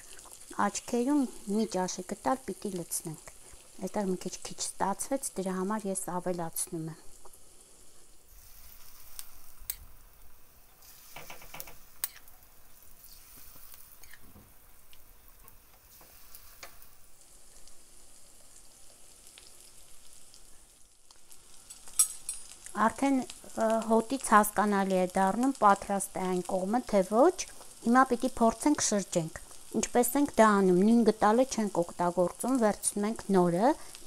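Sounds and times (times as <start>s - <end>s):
batter sizzling in oil: 0.0s - 34.0s
spoon scraping a pan: 10.8s - 12.3s, 13.0s - 14.3s.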